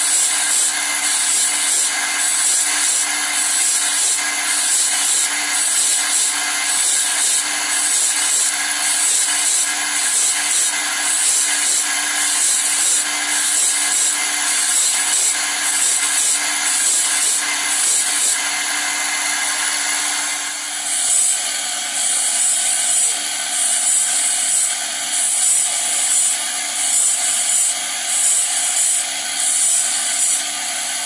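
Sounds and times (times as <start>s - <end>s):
grinding wheel rasp: 0.0s - 31.0s.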